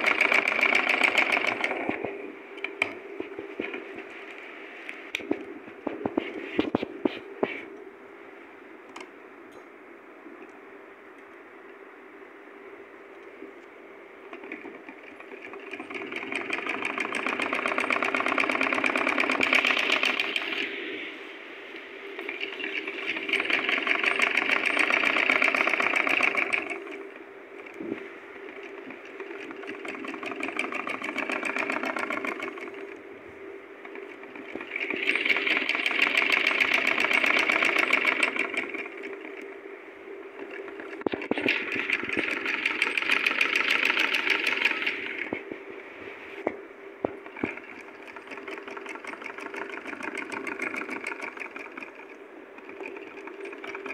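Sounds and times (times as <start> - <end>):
sewing machine stitching: 0.0 - 2.0, 14.3 - 20.7, 22.2 - 27.8, 28.5 - 33.0, 33.9 - 39.4, 40.4 - 45.3, 47.2 - 53.9
faint steady hum: 0.0 - 53.9.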